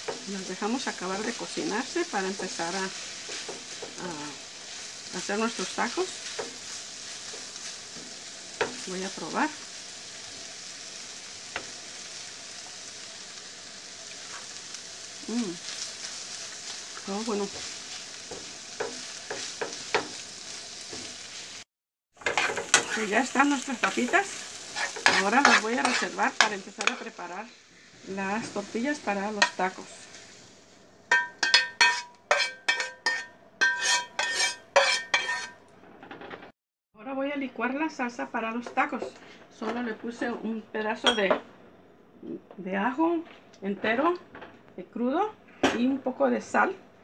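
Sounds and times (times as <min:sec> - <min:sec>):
spatula stirring: 0:00.0 - 0:08.9, 0:15.5 - 0:21.6, 0:22.2 - 0:27.3, 0:31.1 - 0:35.6
food sizzling in a skillet: 0:00.0 - 0:35.6
spatula clinking on plate: 0:31.1 - 0:35.6.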